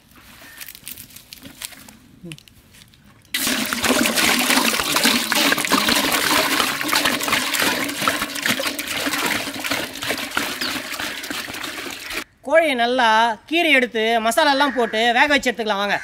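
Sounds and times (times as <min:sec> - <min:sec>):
water pouring and splashing: 0:03.4 - 0:12.3.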